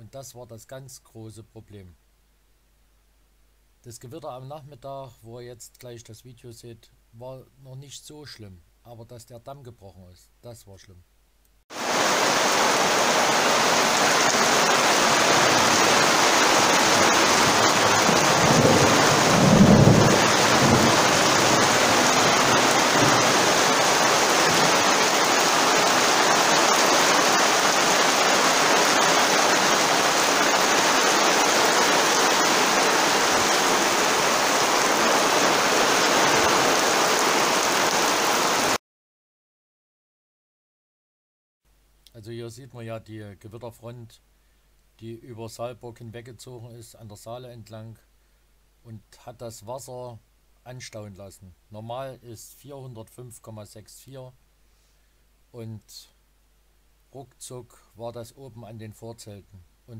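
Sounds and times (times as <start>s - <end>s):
heavy rain pouring: 11.7s - 38.8s
low roll of thunder: 16.9s - 23.8s.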